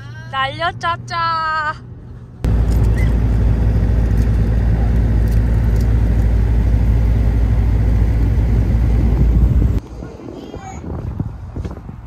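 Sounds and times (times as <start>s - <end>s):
wind buffeting microphone: 2.4s - 12.0s.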